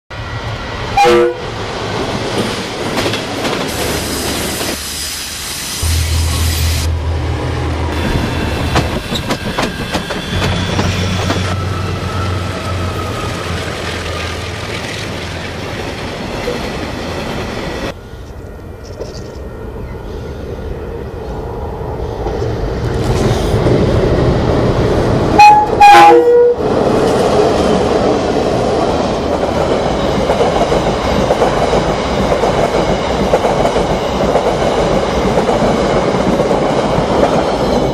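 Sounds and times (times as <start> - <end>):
diesel locomotive engines: 0.1 - 37.9
train horn blasts: 0.9 - 1.5, 25.4 - 26.6.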